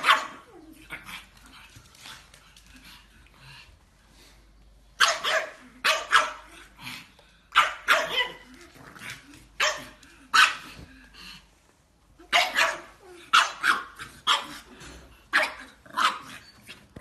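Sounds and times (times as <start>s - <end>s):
puppy barking: 0.0s - 0.5s, 5.0s - 6.5s, 7.6s - 8.5s, 9.6s - 10.7s, 12.2s - 14.7s, 15.3s - 16.4s.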